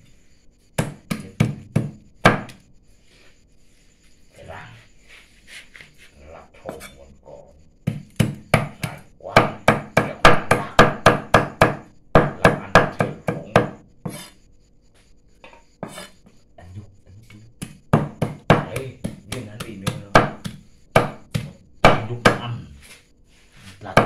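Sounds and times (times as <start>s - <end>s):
knife chopping meat on wooden board: 0.8s - 2.6s, 7.8s - 14.3s, 17.6s - 22.5s.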